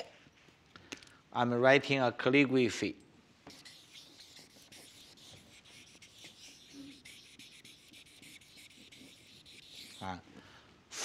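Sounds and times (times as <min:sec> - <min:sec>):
marker scratching on paper: 0:03.5 - 0:10.1.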